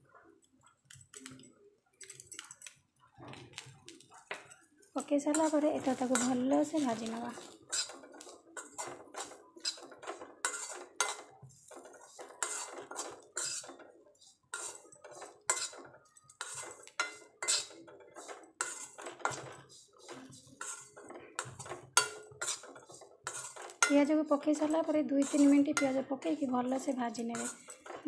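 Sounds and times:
onions stir-frying: 3.2 - 28.0
spoon scraping metal pan: 4.3 - 28.0.

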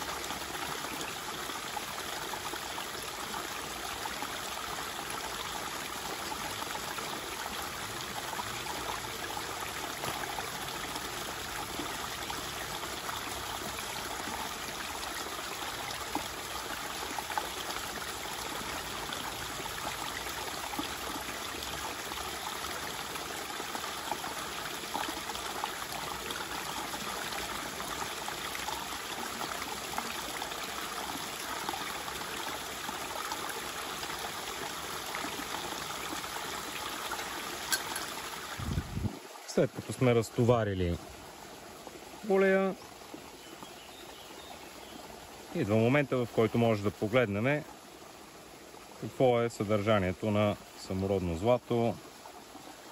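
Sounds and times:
shallow river water running: 0.0 - 52.9
water splashing and sloshing: 36.3 - 39.5.

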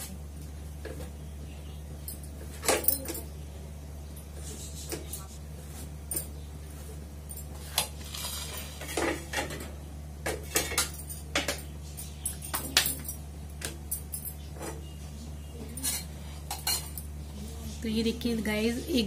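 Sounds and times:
metal tongs clinking on griddle: 15.7 - 17.0.

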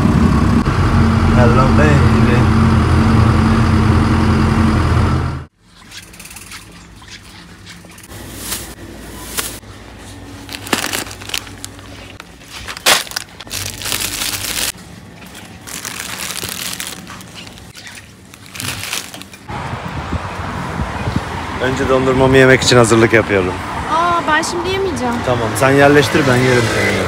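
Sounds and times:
plastic packaging crinkling: 10.2 - 19.4.

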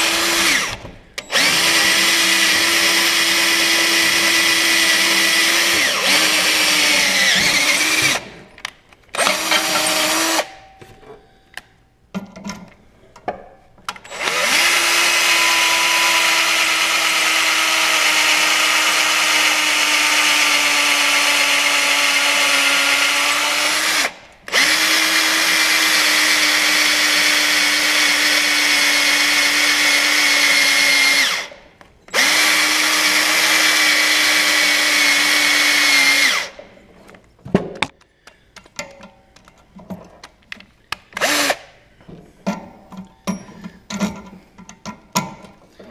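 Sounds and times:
cordless drill boring through steel: 0.0 - 8.4, 9.2 - 10.6, 14.0 - 36.6, 41.2 - 41.7.

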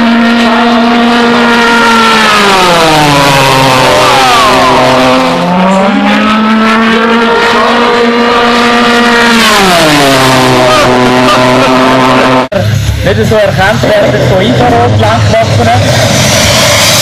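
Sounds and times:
model jet flying past: 14.5 - 17.0.

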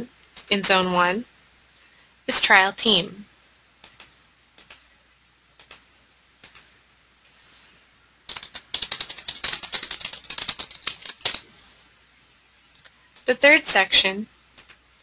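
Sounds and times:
computer keyboard typing: 3.8 - 4.8, 5.6 - 5.8, 6.4 - 6.7, 8.3 - 11.4, 14.6 - 14.8
mouse clicks: 3.8 - 4.8.

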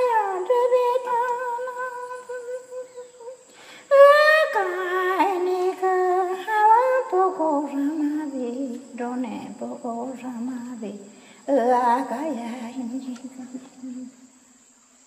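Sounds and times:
high voice humming a slow melody: 0.0 - 14.2.

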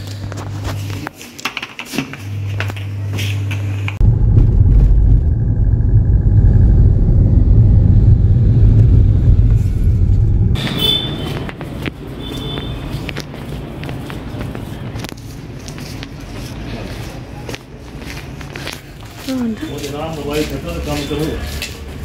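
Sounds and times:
low hum: 3.9 - 11.2
car rumbling: 4.0 - 11.8.

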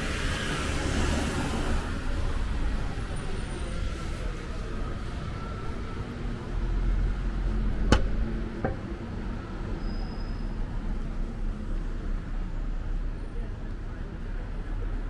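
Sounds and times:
road traffic rumble: 0.0 - 15.0
sharp knock: 7.9 - 9.0.

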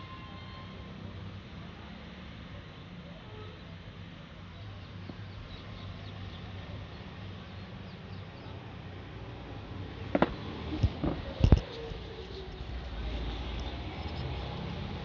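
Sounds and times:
sharp knocks: 10.1 - 11.6.

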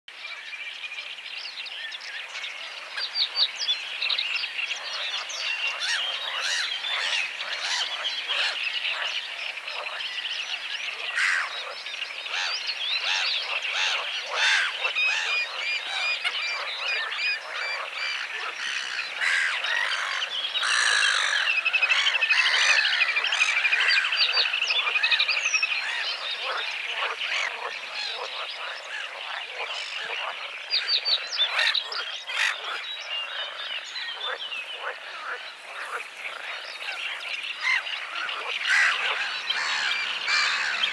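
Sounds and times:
chorus of short bird calls: 1.7 - 40.9
bird trilling: 37.6 - 40.9.

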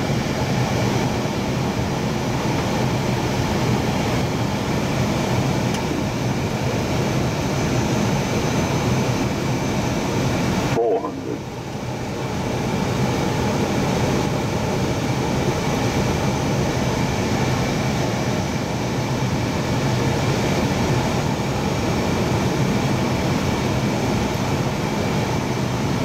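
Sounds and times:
engine and ventilation hum: 0.0 - 26.0.

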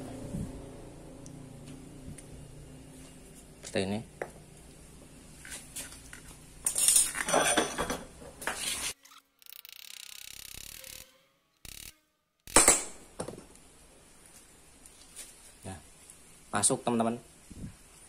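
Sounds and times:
metal clinks and knocks: 6.6 - 8.1
sharp knock: 12.5 - 13.0.

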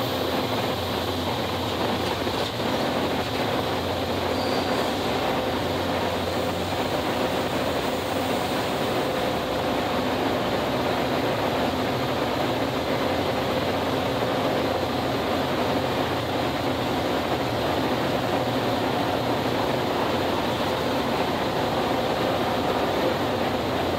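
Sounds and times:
train wheels on rail: 0.0 - 23.9.

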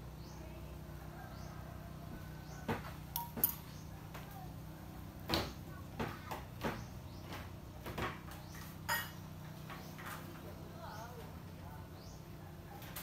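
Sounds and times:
metal spoon clicking on tin: 3.2 - 3.6.

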